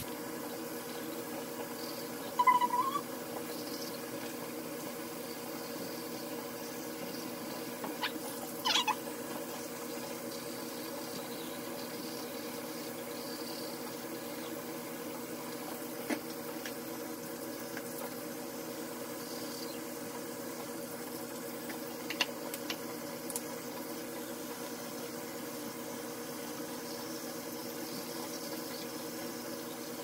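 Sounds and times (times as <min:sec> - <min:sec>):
water running from a tap: 0:13.8 - 0:28.9.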